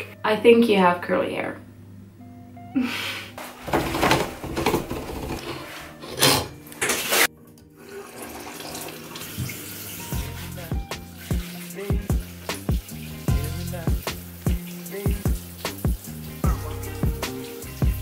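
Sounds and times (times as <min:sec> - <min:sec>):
soft music with plucked notes: 0:00.0 - 0:18.0
shower water running and spraying: 0:06.9 - 0:18.0.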